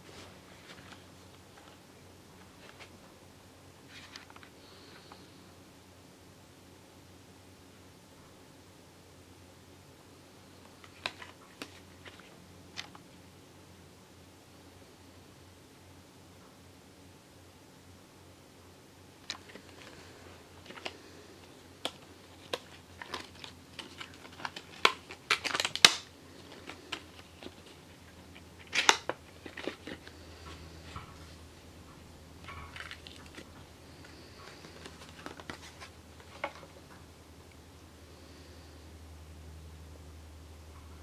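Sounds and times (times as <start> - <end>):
plastic packaging crackling: 19.2 - 30.6, 32.4 - 36.7
packaging rustling: 19.2 - 31.0, 32.4 - 36.8.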